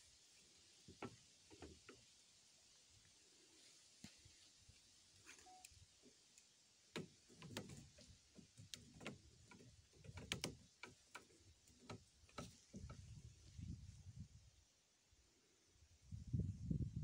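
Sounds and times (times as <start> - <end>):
faint irregular clicks: 5.5 - 13.0.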